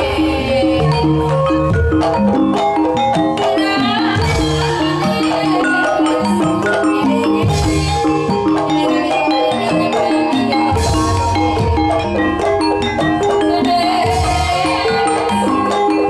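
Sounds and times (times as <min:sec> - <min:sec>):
bamboo xylophones melody: 0:00.0 - 0:16.0
drum strokes: 0:09.7 - 0:16.0.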